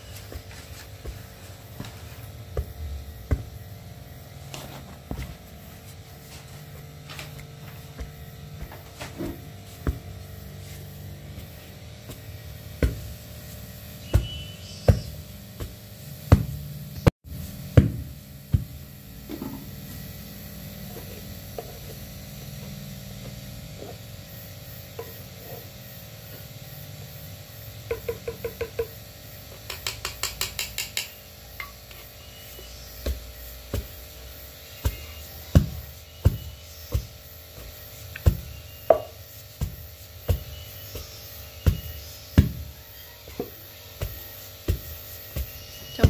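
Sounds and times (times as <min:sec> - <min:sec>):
pestle thudding in mortar: 0:00.2 - 0:03.7, 0:07.9 - 0:13.3, 0:14.0 - 0:16.7, 0:17.7 - 0:18.8, 0:32.7 - 0:46.0.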